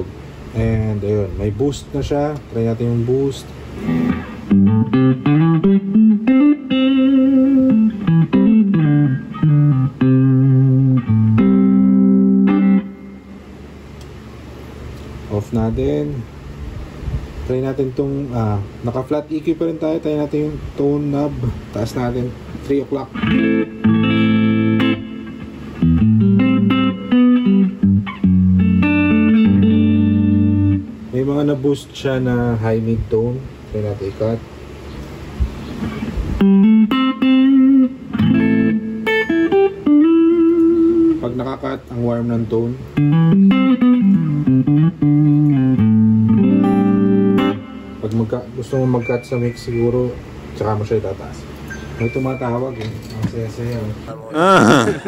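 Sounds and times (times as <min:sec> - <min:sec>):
clean electric guitar with reverb: 0:03.8 - 0:13.4, 0:43.0 - 0:48.0.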